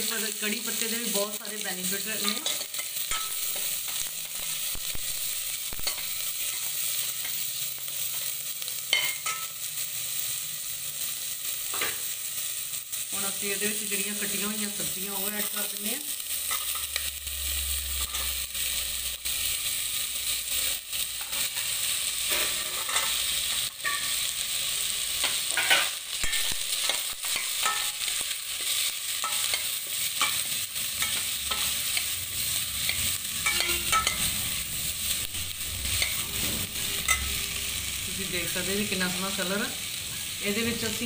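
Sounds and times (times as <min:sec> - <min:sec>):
vegetables sizzling in oil: 0:00.0 - 0:41.0.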